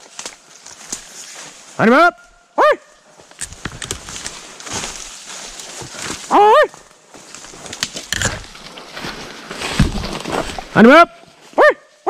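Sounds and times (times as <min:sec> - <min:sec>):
clicks and rustling in brush: 0:03.3 - 0:06.3.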